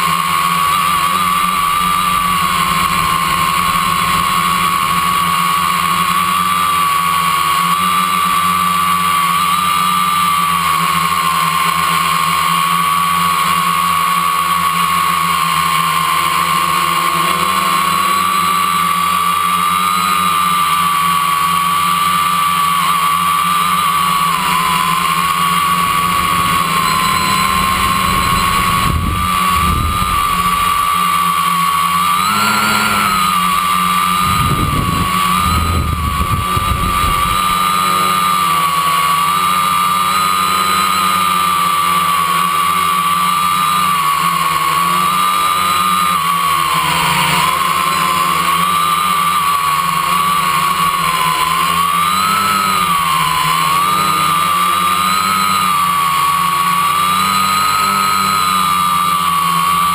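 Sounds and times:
drone propellers whining: 0.0 - 59.9
wind buffeting microphone: 25.8 - 31.2, 34.2 - 37.6.

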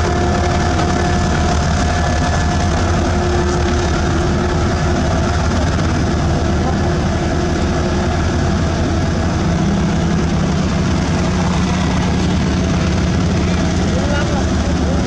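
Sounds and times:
road roller diesel engine rumble: 0.0 - 15.0
second steady engine note: 0.0 - 15.0.

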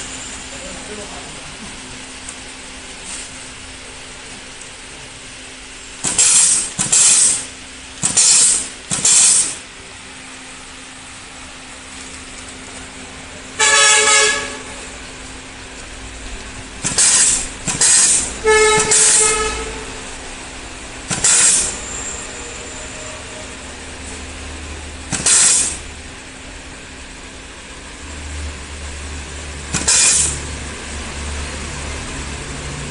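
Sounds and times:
compressed air hiss blasts: 6.0 - 9.6, 16.8 - 19.5, 21.1 - 21.8, 25.1 - 25.9, 29.7 - 30.5.

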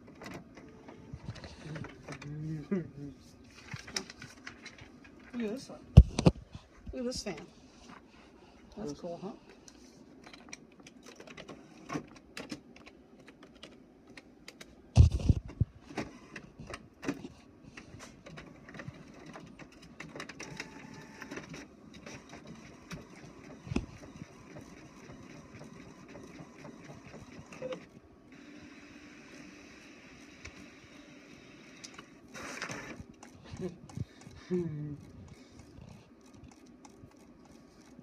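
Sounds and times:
inkjet printer running: 0.0 - 2.8, 15.9 - 17.2, 17.8 - 38.0.

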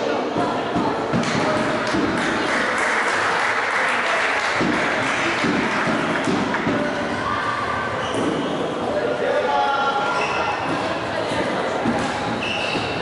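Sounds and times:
crowd voices: 0.0 - 13.0
crowd clapping: 1.8 - 6.7
sharp knocks: 4.6 - 6.9.

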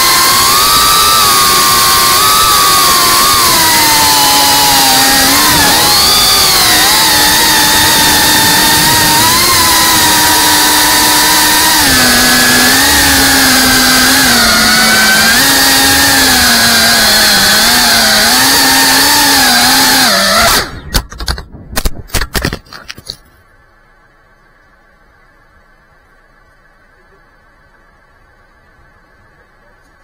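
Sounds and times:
drone motors whining: 0.0 - 21.2
drone crashing in dirt: 20.3 - 23.3.

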